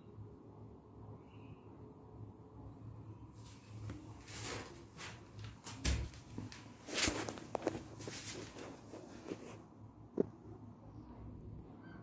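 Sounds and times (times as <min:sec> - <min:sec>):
footsteps: 0:03.4 - 0:09.6
phone rustling and clicking: 0:03.8 - 0:09.6.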